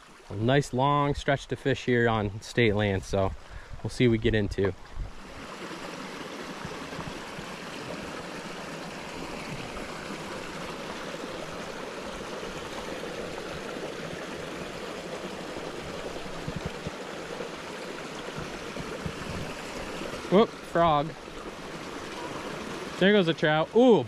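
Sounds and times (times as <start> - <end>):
stream babbling over rocks: 1.9 - 24.0
soft low thumps: 16.3 - 17.0, 18.3 - 19.7.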